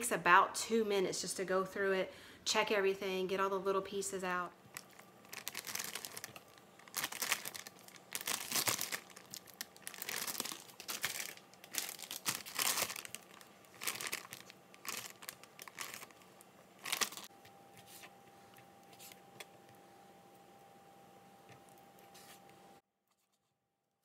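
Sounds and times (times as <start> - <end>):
plastic bag crinkling: 4.7 - 17.3.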